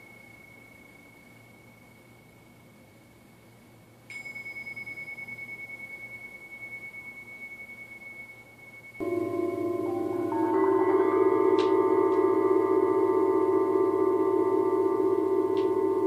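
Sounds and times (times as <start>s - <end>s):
small cymbals ringing: 4.0s - 16.0s
struck metal instrument: 9.0s - 16.0s.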